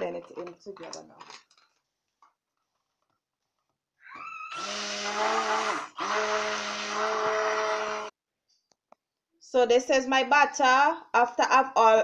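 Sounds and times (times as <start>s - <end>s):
stick blender whining: 4.0s - 8.1s.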